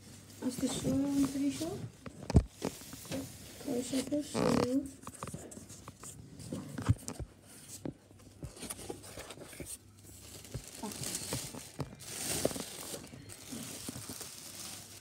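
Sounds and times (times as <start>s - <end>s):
plastic bag crinkling: 8.6s - 15.0s.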